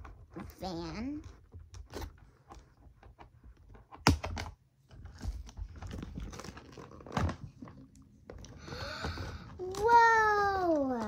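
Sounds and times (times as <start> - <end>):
packaging crinkling and rustling: 4.9 - 8.6.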